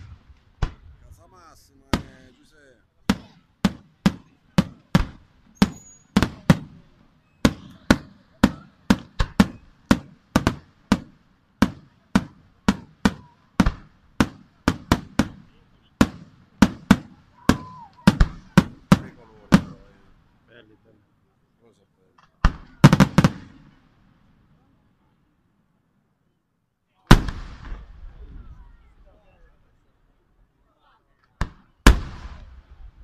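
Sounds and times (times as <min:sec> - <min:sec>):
firework shells bursting: 0:03.1 - 0:06.8.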